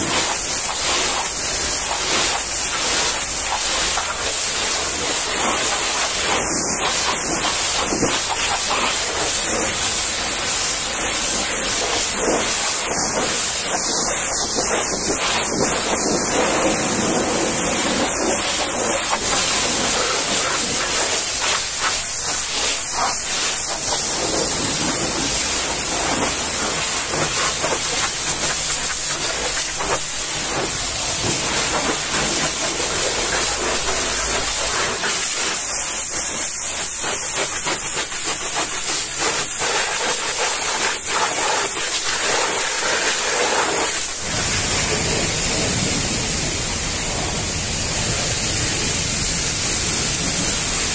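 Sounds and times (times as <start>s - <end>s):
pressure washer spraying metal: 0.0s - 50.9s.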